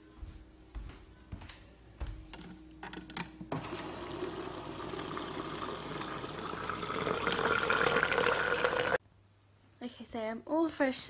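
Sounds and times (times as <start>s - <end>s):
water filling plastic bottle: 3.6s - 9.0s.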